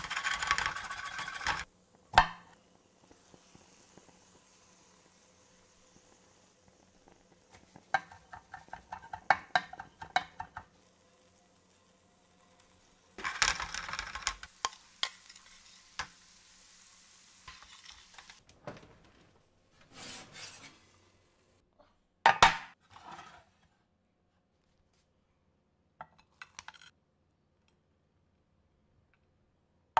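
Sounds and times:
butter sizzling: 0:00.0 - 0:18.5
metal spatula scraping skillet: 0:19.8 - 0:21.1, 0:22.8 - 0:23.7.

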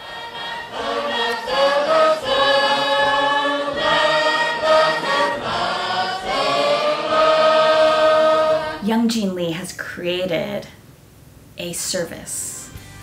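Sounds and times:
choir singing held chords: 0:00.0 - 0:09.0.

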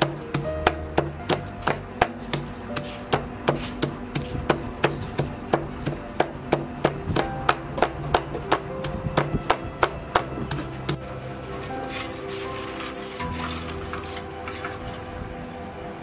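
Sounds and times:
cleaver chopping meat on wood: 0:00.0 - 0:11.0.

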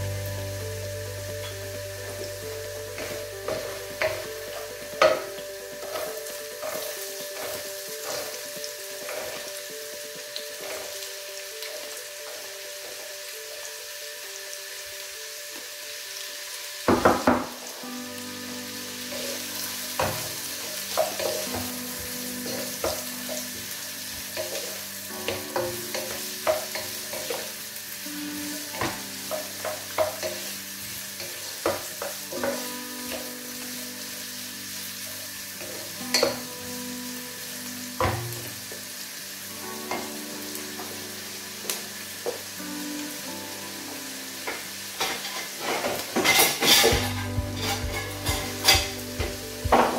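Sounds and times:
onions sizzling in a pot: 0:00.0 - 0:49.9
wooden spoon scraping a pot: 0:45.1 - 0:49.0.

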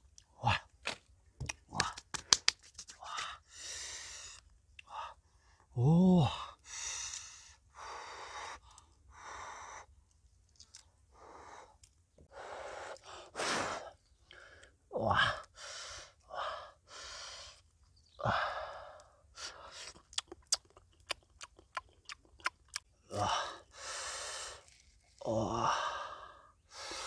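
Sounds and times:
eggshell cracking: 0:19.8 - 0:22.9.

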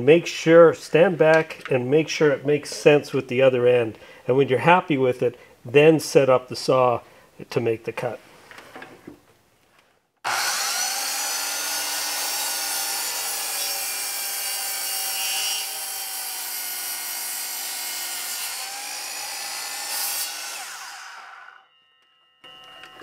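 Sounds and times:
mitre saw cutting wood: 0:10.2 - 0:21.6.

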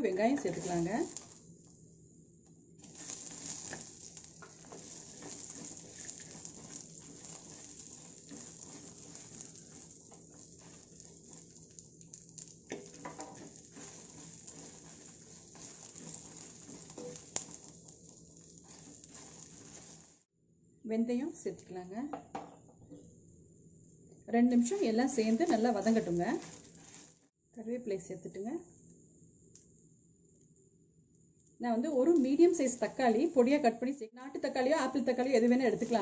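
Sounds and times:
wooden spatula stirring and scraping: 0:00.0 - 0:01.5, 0:02.8 - 0:20.3, 0:24.5 - 0:27.3, 0:32.0 - 0:33.2, 0:35.1 - 0:36.0
spices sizzling in oil: 0:00.0 - 0:02.0, 0:02.7 - 0:20.3, 0:24.4 - 0:27.3, 0:31.8 - 0:33.7, 0:34.5 - 0:36.0.

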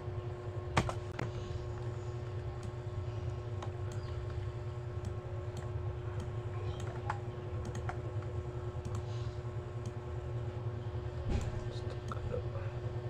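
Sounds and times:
steady low hum: 0:00.0 - 0:13.0
computer keyboard clicks: 0:05.0 - 0:09.0.

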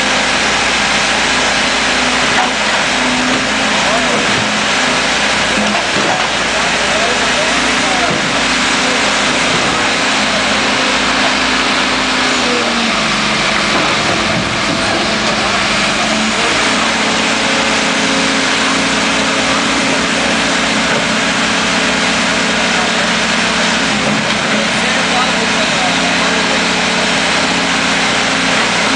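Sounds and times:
backhoe engine running: 0:00.0 - 0:28.9.

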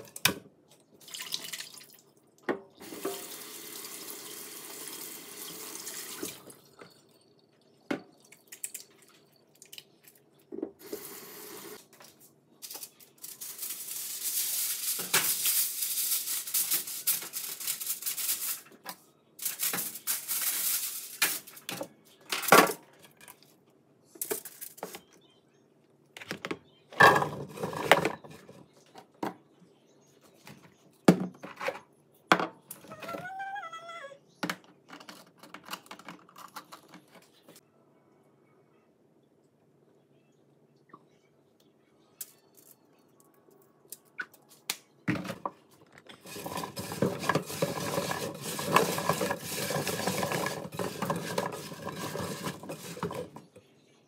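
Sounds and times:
water running from a tap: 0:02.8 - 0:06.5, 0:10.8 - 0:11.8
dishes and pans clattering: 0:26.9 - 0:28.6, 0:46.1 - 0:53.4.

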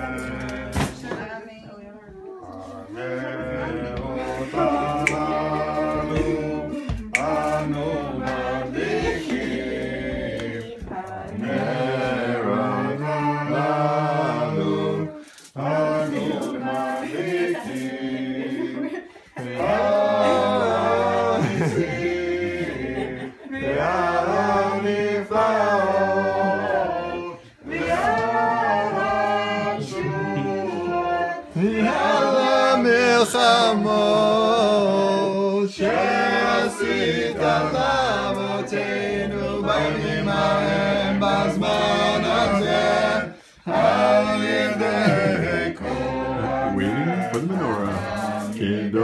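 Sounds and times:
group singing unaccompanied: 0:00.0 - 0:01.7, 0:02.6 - 0:49.0.

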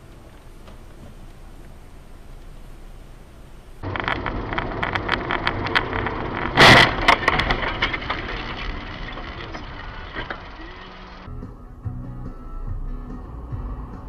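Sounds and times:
vehicle noise: 0:00.0 - 0:11.4
car crash impact: 0:03.4 - 0:11.3
cracking and clattering: 0:03.8 - 0:11.3.

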